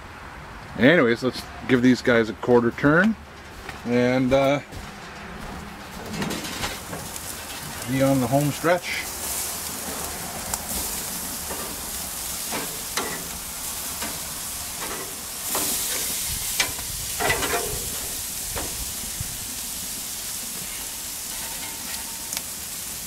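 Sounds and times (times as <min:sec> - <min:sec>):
metal tongs scraping grate: 0:05.8 - 0:07.6, 0:08.8 - 0:18.8, 0:20.6 - 0:22.5
bacon sizzling on grill: 0:06.0 - 0:23.0.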